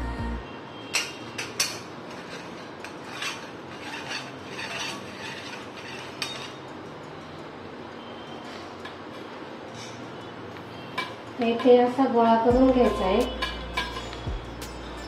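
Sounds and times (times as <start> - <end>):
light metal scraping: 1.4 - 6.7.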